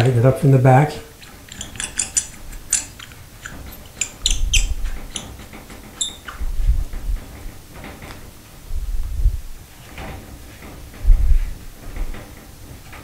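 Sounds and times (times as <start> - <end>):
small metal clicks: 1.2 - 6.4
brief squeaks: 4.0 - 5.4, 6.0 - 6.6
dull bumps: 6.3 - 12.4.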